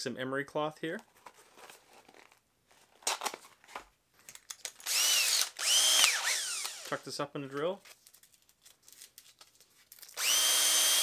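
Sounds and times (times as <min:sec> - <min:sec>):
cordless drill motor whine: 0:04.9 - 0:06.9, 0:10.2 - 0:11.0.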